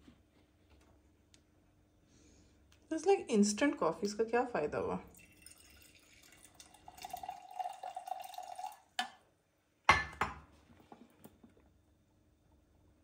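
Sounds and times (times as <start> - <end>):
coffee pouring into mug: 5.1 - 9.1.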